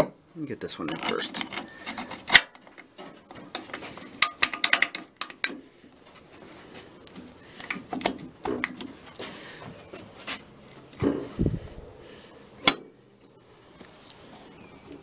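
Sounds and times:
metal clicks and clinks: 0.8s - 5.6s.

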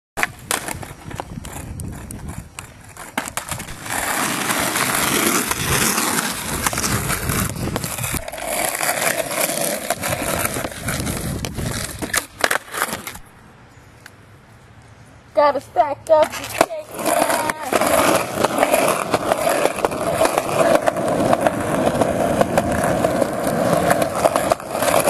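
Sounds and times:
skateboard wheels rolling on asphalt: 0.2s - 25.0s
skateboard clacks and knocks: 16.1s - 25.0s.

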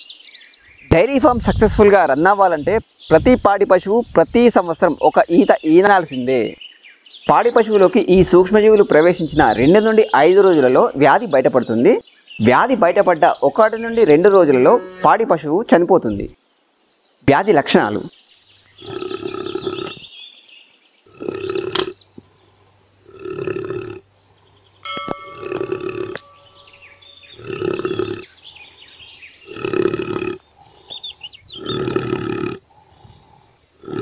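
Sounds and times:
buffalo snoring grunts: 18.8s - 20.1s, 21.1s - 22.0s, 23.0s - 24.0s, 25.4s - 26.2s, 27.3s - 28.3s, 29.4s - 30.8s, 31.5s - 33.1s, 33.8s - 34.0s.

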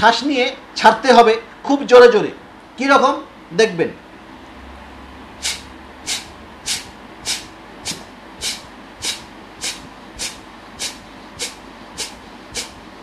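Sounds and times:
forceful nasal exhalations: 5.4s - 12.8s.

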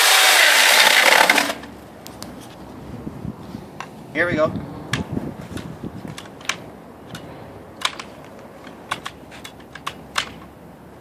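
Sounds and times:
sharp clicks and light knocks: 4.9s - 10.5s.

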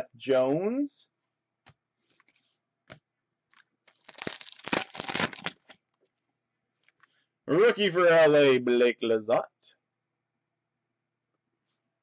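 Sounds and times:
foil wrapper crinkling: 3.5s - 5.8s
foil wrapper tearing: 3.9s - 5.8s.

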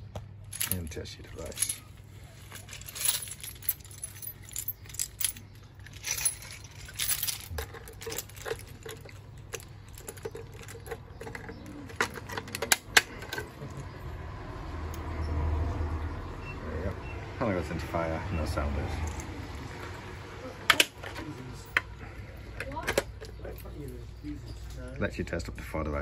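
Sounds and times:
keys jangling: 0.5s - 13.9s.

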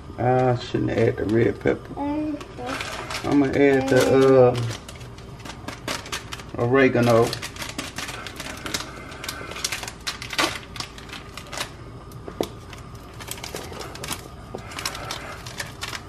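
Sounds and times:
seasoning packet crinkling: 2.8s - 11.8s, 12.5s - 16.0s.

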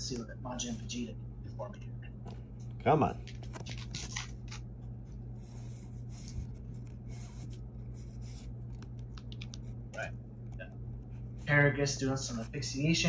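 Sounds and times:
low hum: 0.0s - 13.0s
cards rustling and flicking: 3.2s - 4.6s, 8.2s - 9.8s.

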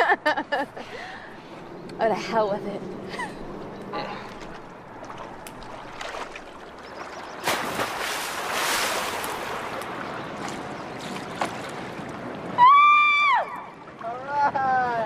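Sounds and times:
hiss of water and wind: 0.5s - 15.0s
diver splashing into water: 7.4s - 12.0s.

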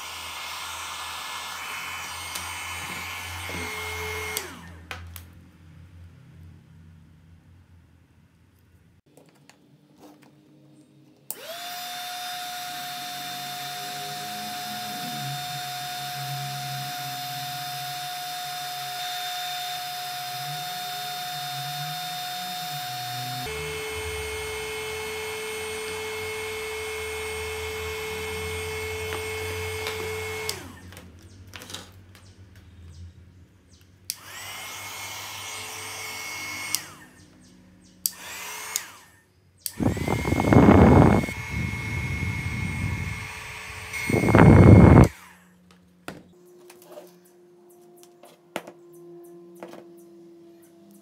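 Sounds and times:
hot air gun fan whine: 0.0s - 5.3s, 11.3s - 31.7s, 34.0s - 51.0s
rush of air on microphone: 39.8s - 43.2s, 43.9s - 45.1s.

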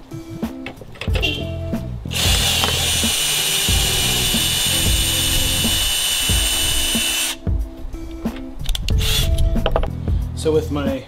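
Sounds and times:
drill boring through steel: 2.1s - 7.4s.

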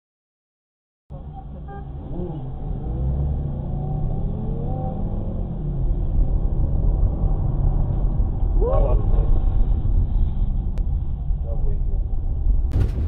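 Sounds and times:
engines revving: 1.1s - 10.8s
engine and road rumble: 1.1s - 13.0s.

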